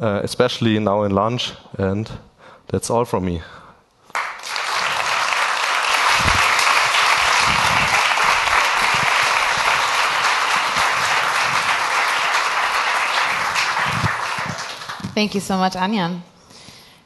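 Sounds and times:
audience applauding: 4.1s - 15.5s.

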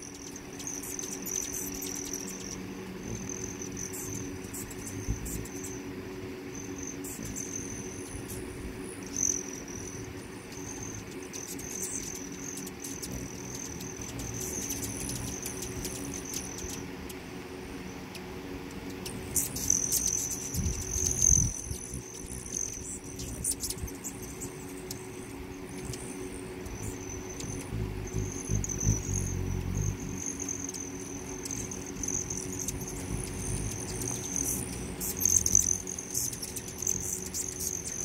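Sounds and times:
hummingbird high trill: 0.0s - 38.0s
hummingbird wing hum: 0.0s - 38.0s
hummingbird squeaky chips: 26.6s - 38.0s.

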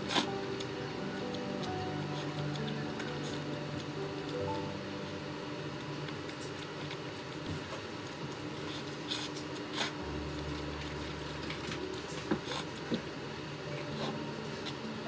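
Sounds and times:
low hum: 10.0s - 15.0s.

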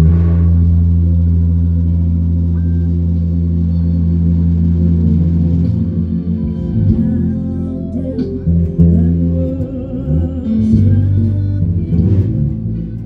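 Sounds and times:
electric bass guitar notes: 0.0s - 13.0s
background music: 5.1s - 13.0s.

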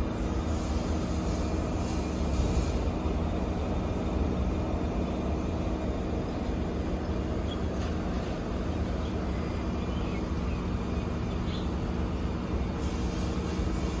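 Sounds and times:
faint hiss: 0.0s - 3.7s, 12.6s - 14.0s
low machinery drone: 0.0s - 14.0s.

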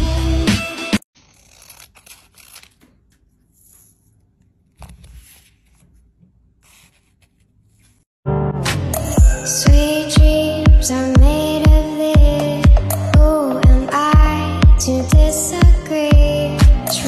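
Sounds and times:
scissors snipping paper: 1.2s - 4.0s
paper rustling: 1.2s - 8.1s.

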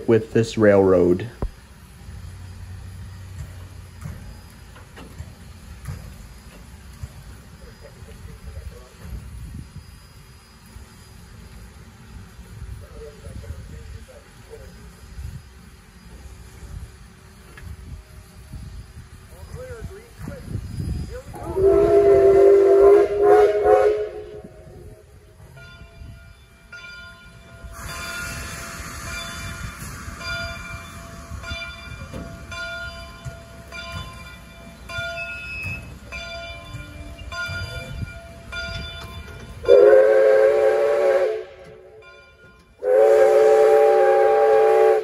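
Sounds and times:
running train noise: 0.0s - 45.0s
steam hissing: 0.0s - 45.0s
steam whistle chime: 20.6s - 45.0s.

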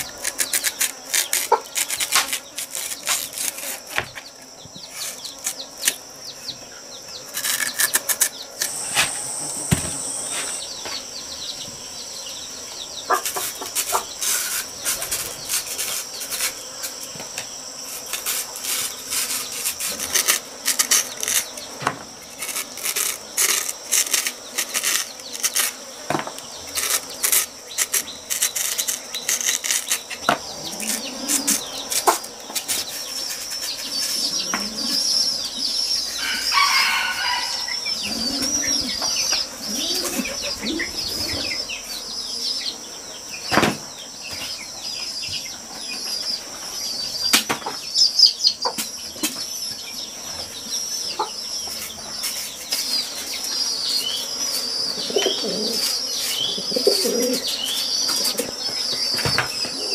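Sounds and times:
cleaver scraping yam skin: 0.0s - 4.2s, 4.8s - 6.0s, 7.3s - 10.6s, 13.1s - 17.2s, 17.8s - 35.0s
insects buzzing: 0.0s - 59.9s.

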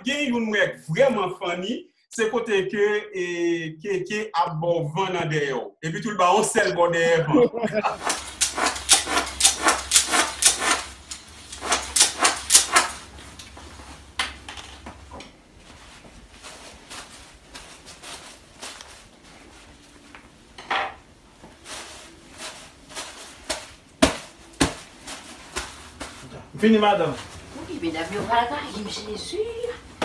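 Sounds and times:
slaps on clothed backside: 23.5s - 24.9s.

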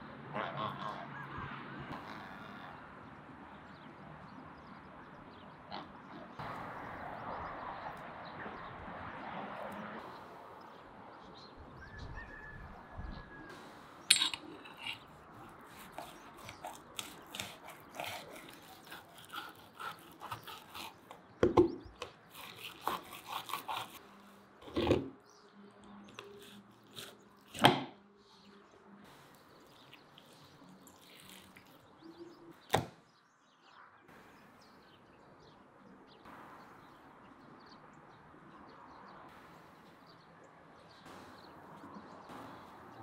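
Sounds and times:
faint poultry-yard sounds: 0.2s - 3.0s
knife on wooden cutting board: 14.1s - 15.0s, 22.3s - 24.0s
kitchen shears snipping: 14.1s - 21.2s, 22.0s - 24.0s, 26.2s - 27.9s.

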